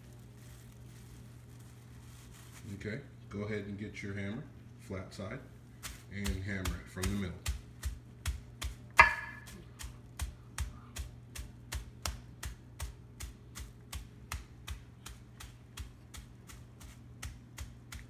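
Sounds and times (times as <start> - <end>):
meat mallet pounding chicken: 5.8 - 18.0.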